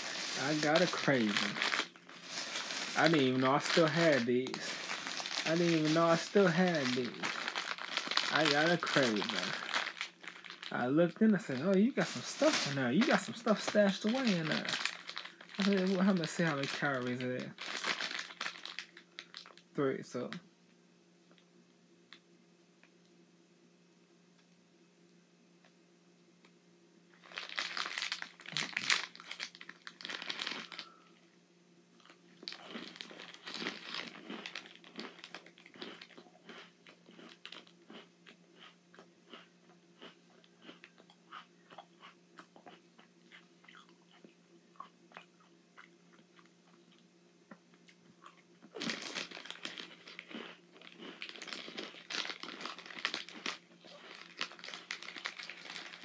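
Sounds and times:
cookie crunching and chewing: 0:00.0 - 0:10.8, 0:11.6 - 0:19.6, 0:27.2 - 0:31.0, 0:32.0 - 0:56.0
plastic wrapper crinkling: 0:00.0 - 0:19.6, 0:27.2 - 0:31.0, 0:32.0 - 0:37.8, 0:48.7 - 0:56.0.

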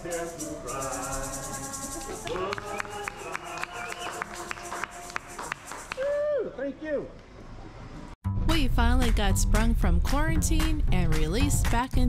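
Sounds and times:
light tapping beat: 0:08.5 - 0:12.0.

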